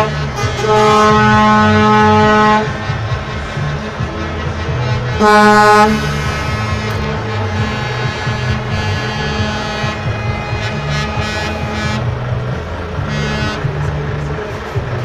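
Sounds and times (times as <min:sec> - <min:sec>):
truck air horn blasts: 0:00.0 - 0:02.8, 0:04.4 - 0:12.4, 0:13.0 - 0:13.9
diesel engines running: 0:00.0 - 0:15.0.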